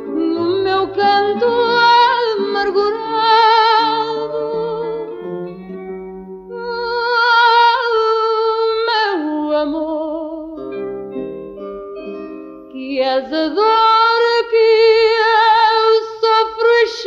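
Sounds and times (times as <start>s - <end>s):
person singing with vibrato: 0.0s - 5.3s, 12.8s - 17.0s
plucked guitar: 0.0s - 17.0s.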